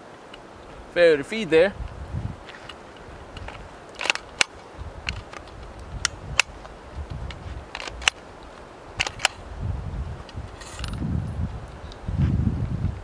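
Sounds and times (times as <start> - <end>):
low rustle: 1.7 - 13.0
rifle mechanism clicks: 3.4 - 6.5, 7.7 - 8.2, 9.0 - 9.4.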